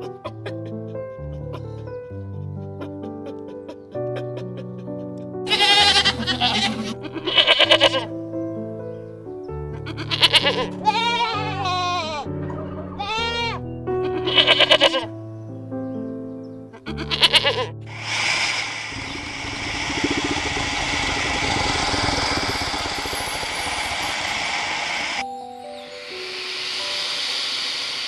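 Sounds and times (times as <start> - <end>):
soft background music: 0.0 - 17.8
goat bleating: 5.5 - 8.1, 9.9 - 12.3, 13.0 - 15.1, 16.9 - 17.7
long steady hiss: 17.9 - 28.0.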